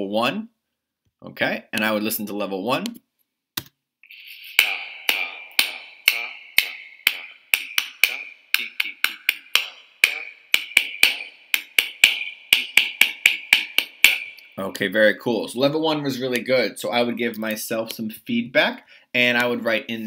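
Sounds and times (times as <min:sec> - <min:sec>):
sharp percussive taps: 0:03.6 - 0:14.6.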